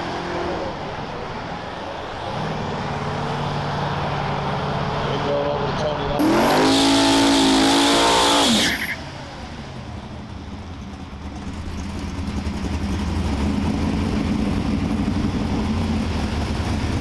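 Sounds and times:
car engine at high revs: 0.0s - 1.2s, 2.3s - 10.2s.

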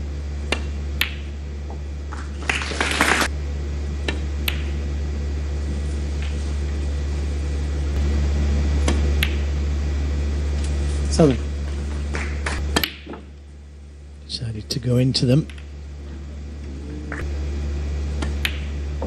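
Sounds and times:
steady low hum: 0.0s - 19.0s
snooker balls clicking: 0.5s - 3.3s, 4.0s - 4.8s, 8.8s - 9.5s, 10.6s - 13.4s, 15.3s - 17.3s, 18.2s - 18.8s.

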